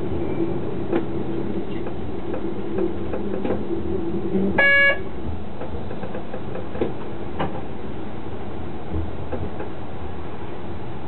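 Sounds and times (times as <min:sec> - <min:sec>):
railcar engine hum: 0:00.0 - 0:11.0
wheels knocking on track: 0:00.9 - 0:07.7.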